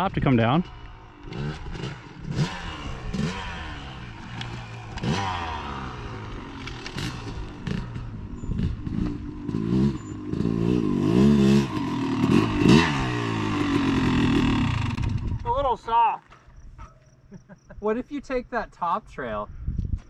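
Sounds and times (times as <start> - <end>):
dirt bike engine revving: 0.3 - 15.5.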